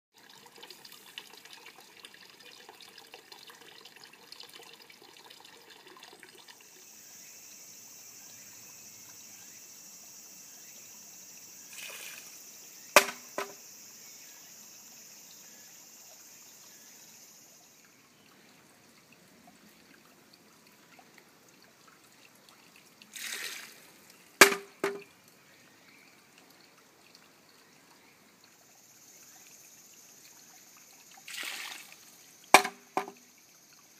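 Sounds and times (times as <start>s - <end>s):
water trickling into stone basin: 0.1s - 9.6s, 10.6s - 33.9s
bamboo clacking on stone: 13.0s - 13.6s, 24.4s - 25.1s, 32.6s - 33.2s
rebound knock: 13.0s - 13.6s, 24.4s - 25.0s, 32.6s - 33.2s
water splash: 13.0s - 13.6s, 23.1s - 25.1s, 31.3s - 33.2s.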